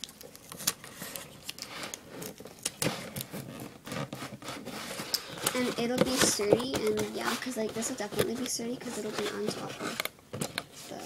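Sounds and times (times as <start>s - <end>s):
cardboard crackling and knocking: 2.3s - 11.0s.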